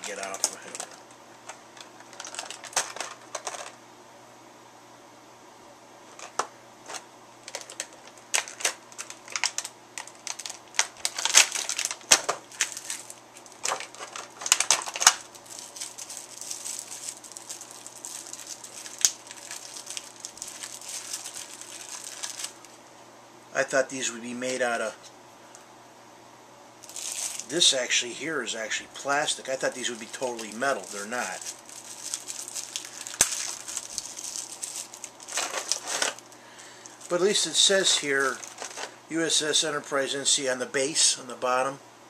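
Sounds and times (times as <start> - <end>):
plastic packaging crackling: 0.0 - 3.8, 6.1 - 22.8, 26.8 - 27.8, 29.1 - 39.0.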